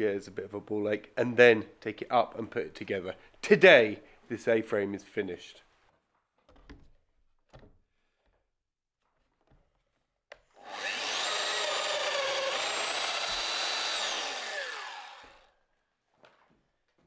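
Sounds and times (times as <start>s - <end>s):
power tool motor whine: 10.6s - 15.5s.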